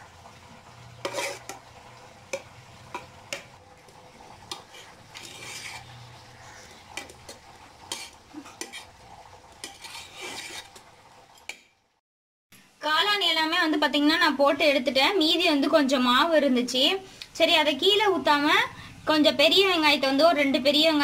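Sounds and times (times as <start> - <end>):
metal ladle scraping a pot: 1.0 - 1.7, 4.3 - 11.6.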